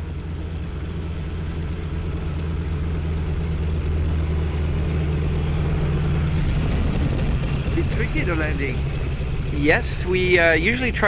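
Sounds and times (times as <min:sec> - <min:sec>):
biplane engine low drone: 0:00.0 - 0:11.0.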